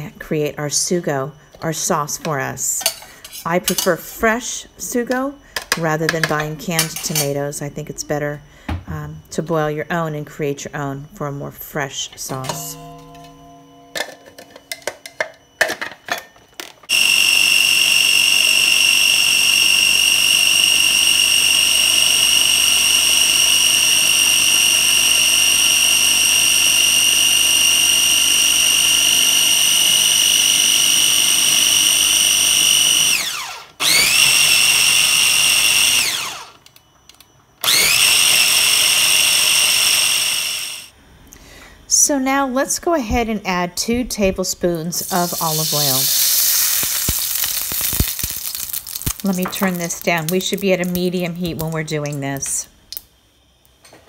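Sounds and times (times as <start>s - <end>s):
food processor clicks: 16.9s - 36.8s, 37.6s - 40.8s
food processor motor whining: 16.9s - 36.8s, 37.6s - 40.9s, 45.0s - 51.0s.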